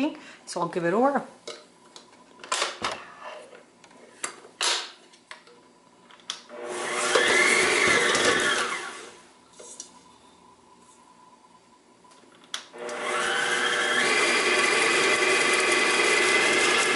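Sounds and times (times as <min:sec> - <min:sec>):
stand mixer motor whining: 0:06.5 - 0:09.2, 0:12.8 - 0:16.9.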